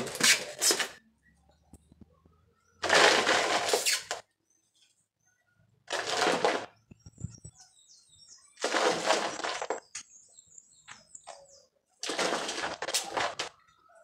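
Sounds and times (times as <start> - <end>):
faint bird chirps: 3.9 - 5.9, 6.7 - 12.0
soil dropped into plastic tub: 5.9 - 6.7, 8.6 - 10.1, 12.0 - 13.6.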